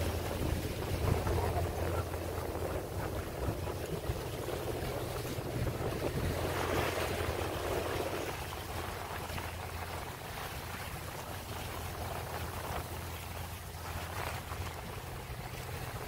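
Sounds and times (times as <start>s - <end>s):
water rushing along boat hull: 0.0s - 16.0s
wind on microphone: 0.0s - 16.0s.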